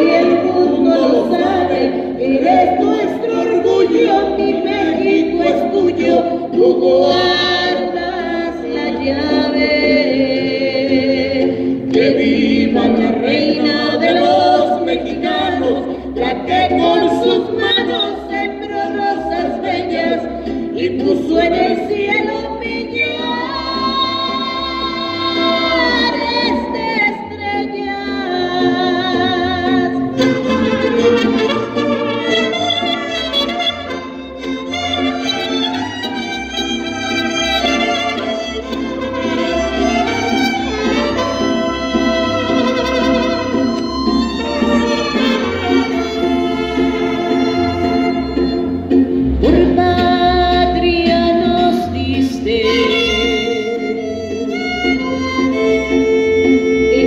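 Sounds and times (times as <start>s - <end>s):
woman singing into microphone: 0.0s - 30.3s, 49.3s - 54.0s.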